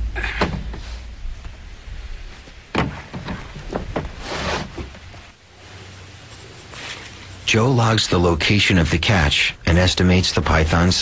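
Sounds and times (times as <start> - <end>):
knocks: 2.7 - 4.2.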